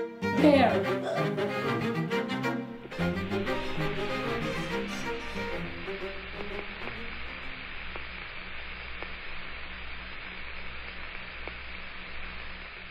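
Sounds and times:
string music: 0.0 - 7.7
static hiss: 0.0 - 12.9
low mains hum: 0.4 - 12.9.

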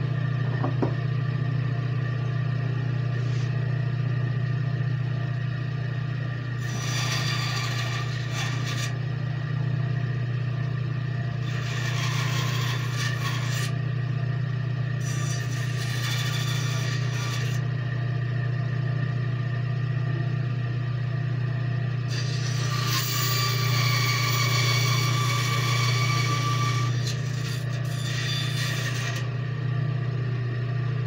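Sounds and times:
bandsaw humming: 6.2 - 9.6, 11.1 - 13.9, 14.9 - 18.0, 22.1 - 29.7
saw blade rasping through wood: 6.6 - 9.0, 11.4 - 13.8, 15.0 - 17.6, 22.1 - 29.3.

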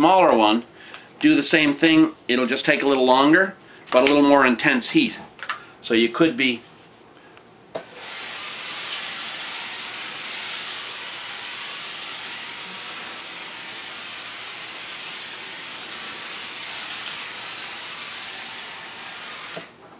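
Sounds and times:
steam cleaner hissing: 7.8 - 19.8.

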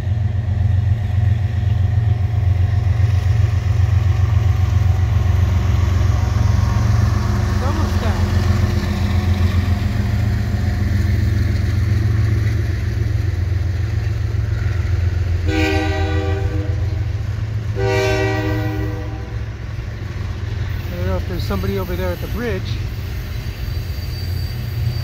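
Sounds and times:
freight cars rumbling past: 0.0 - 25.0
locomotive horn blasts: 15.4 - 17.1, 17.7 - 19.5.

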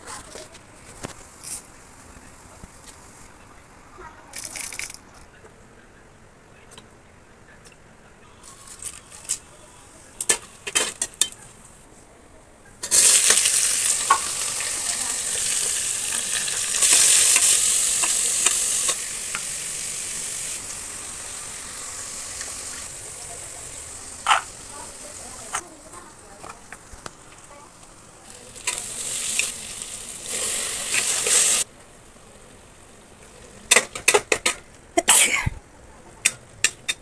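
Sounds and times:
onions sizzling in hot oil: 12.8 - 31.7.

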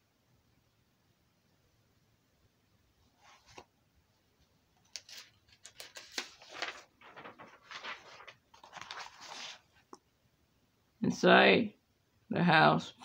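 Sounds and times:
book pages rustling: 3.2 - 3.7, 4.8 - 10.0.

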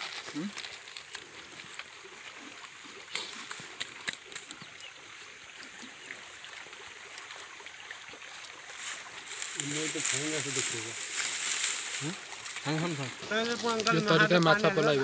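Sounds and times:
fire crackling: 9.0 - 15.0.

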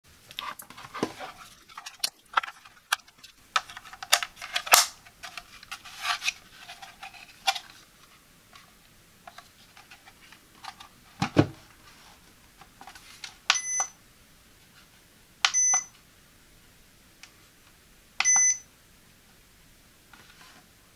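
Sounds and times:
short electronic beeps: 13.5 - 13.9, 15.5 - 15.9, 18.2 - 18.6.

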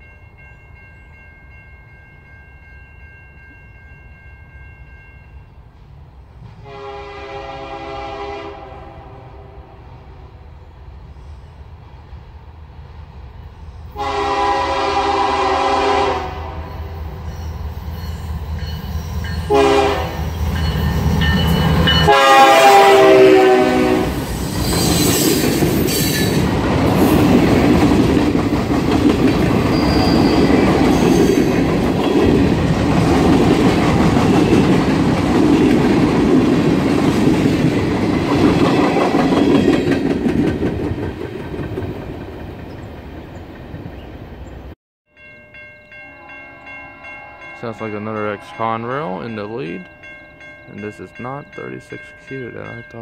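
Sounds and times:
train air horn blasts: 6.6 - 10.4, 13.9 - 17.0, 19.4 - 20.4, 21.9 - 24.3, 46.0 - 49.2
train wheels clacking on rails: 24.6 - 44.0.

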